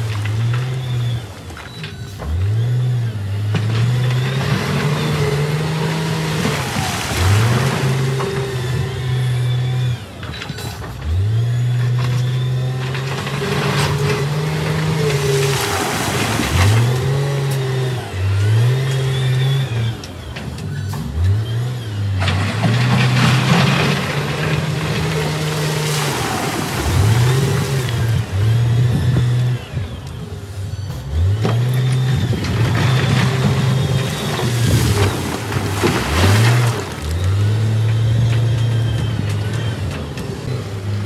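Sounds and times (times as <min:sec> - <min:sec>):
wheel loader diesel engine revving: 0:00.0 - 0:41.0
rock crunching and rattling: 0:22.2 - 0:29.4, 0:31.5 - 0:41.0.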